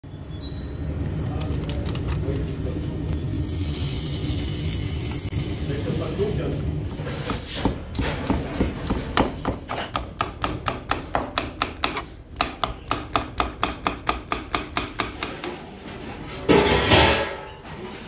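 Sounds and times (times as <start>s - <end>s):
knife chopping on cutting board: 7.2s - 15.3s.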